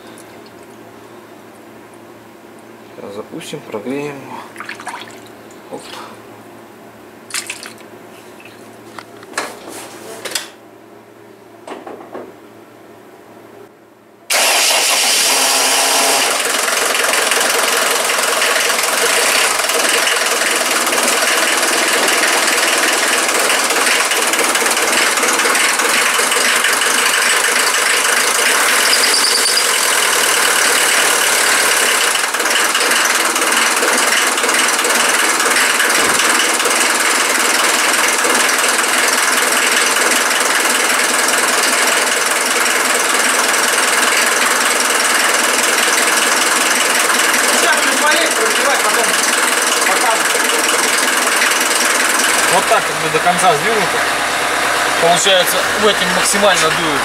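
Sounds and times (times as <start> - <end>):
heater blower rushing: 14.3 - 39.2, 44.7 - 57.0
car engine running: 14.6 - 57.0.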